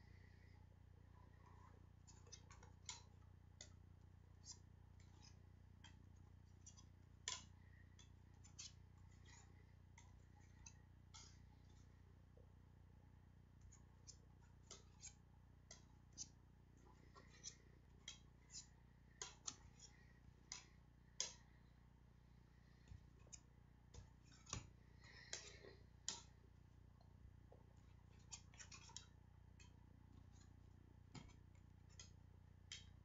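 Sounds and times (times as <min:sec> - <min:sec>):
low steady hum: 0:00.0 - 0:33.0
plastic cds clicking and scraping: 0:04.4 - 0:11.9, 0:13.6 - 0:21.7, 0:22.6 - 0:26.4, 0:27.9 - 0:33.0.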